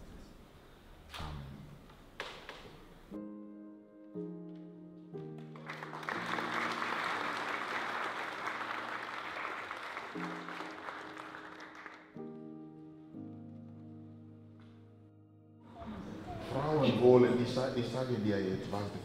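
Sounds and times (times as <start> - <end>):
guests applauding: 5.4 - 12.3.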